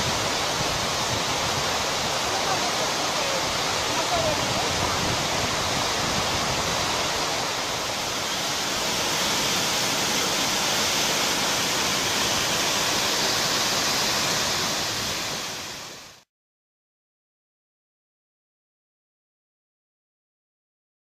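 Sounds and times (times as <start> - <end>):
waterfall rushing: 0.0 - 16.3.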